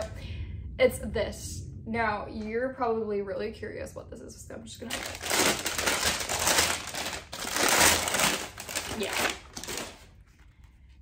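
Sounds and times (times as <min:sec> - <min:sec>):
paper wrapping crinkling: 0:04.9 - 0:10.8.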